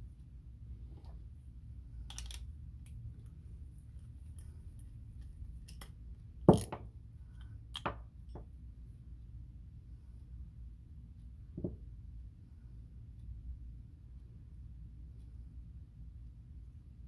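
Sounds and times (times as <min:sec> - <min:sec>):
screwdriver knocking on workbench: 0:11.6 - 0:11.8.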